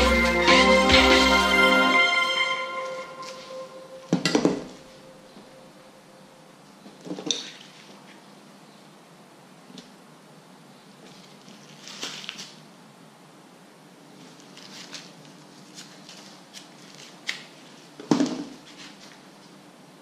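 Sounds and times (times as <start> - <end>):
rustles of handling: 11.0 - 12.6, 14.2 - 17.8.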